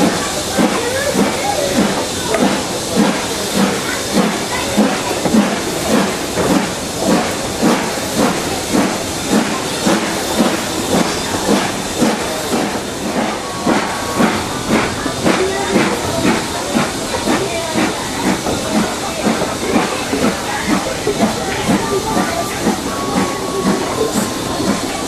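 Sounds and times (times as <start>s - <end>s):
constant steam hiss: 0.0s - 25.0s
steam locomotive exhaust beats: 0.0s - 25.0s.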